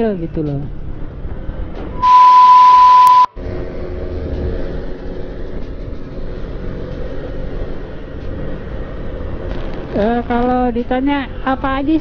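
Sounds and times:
road and wind noise: 0.0s - 12.0s
high test-tone beep: 2.0s - 3.3s.

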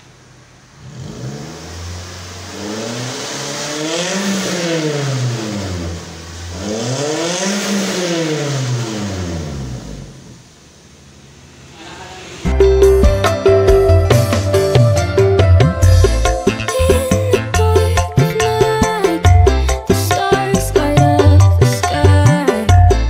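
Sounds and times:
car engine idling and revving: 0.0s - 23.0s.

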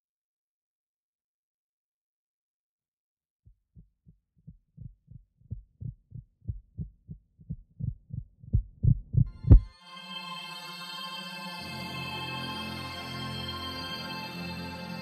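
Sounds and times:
heartbeat thumps: 3.6s - 9.7s.

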